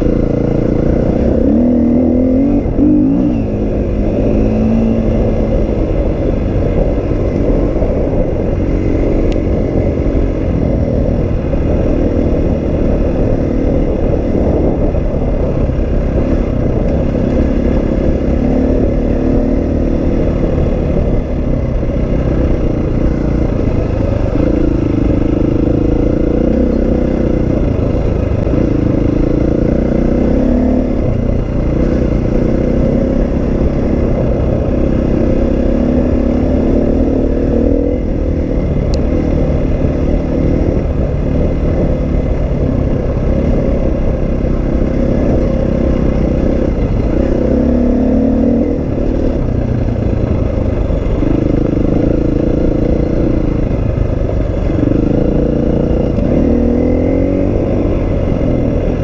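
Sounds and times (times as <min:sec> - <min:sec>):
dirt bike engine revving: 0:00.0 - 0:05.7, 0:23.2 - 0:53.5
low rumble: 0:00.0 - 0:59.0.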